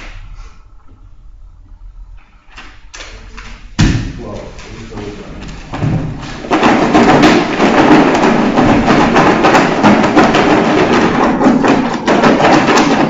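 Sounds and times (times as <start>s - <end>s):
paper slips rattling in a box: 4.3s - 13.0s.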